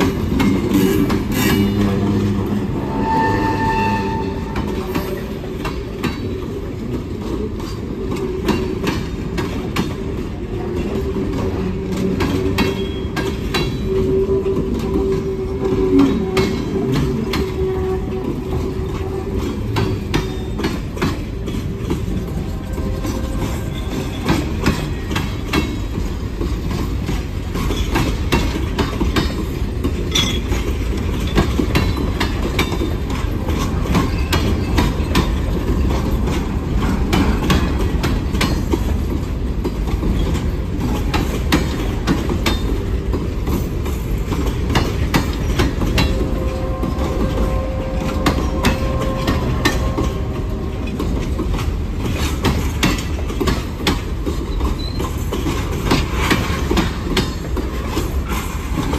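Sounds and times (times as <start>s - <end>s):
clanks over rail joints: 0.0s - 58.9s
train wheels rumbling on rail: 0.0s - 58.9s
faint wheel squeal: 2.8s - 4.6s.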